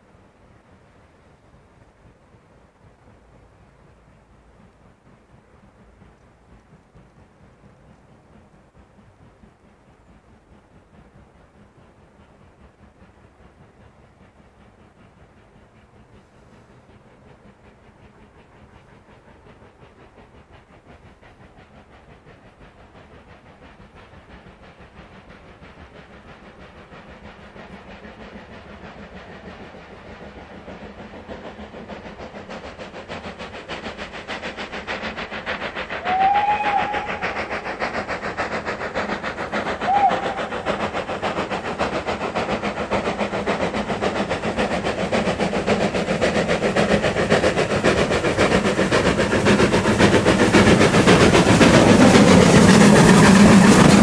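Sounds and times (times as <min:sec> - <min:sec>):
steam locomotive exhaust beats: 0:00.0 - 0:54.0
steam whistle: 0:36.0 - 0:37.6, 0:39.8 - 0:40.5.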